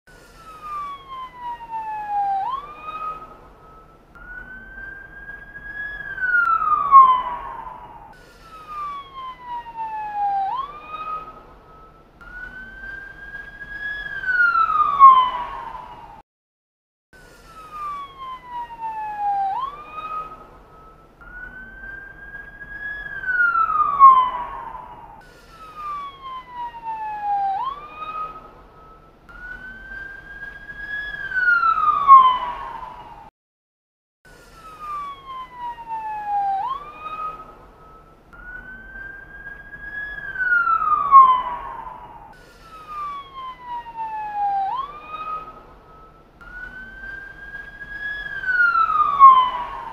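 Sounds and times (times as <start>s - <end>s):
emergency vehicle siren wailing: 0.1s - 16.2s, 17.2s - 33.3s, 34.3s - 49.9s.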